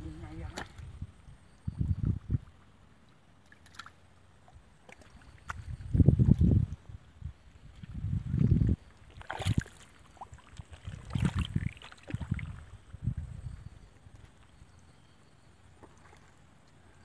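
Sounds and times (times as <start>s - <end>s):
hands sloshing through muddy water: 7.7s - 12.8s
sharp splashes: 9.1s - 12.6s.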